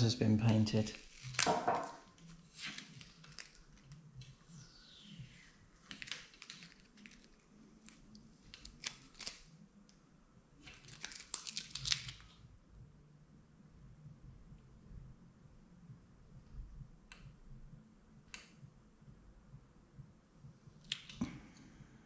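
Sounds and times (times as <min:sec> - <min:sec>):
vinyl peeling crackling: 0:00.4 - 0:09.9, 0:10.6 - 0:12.4.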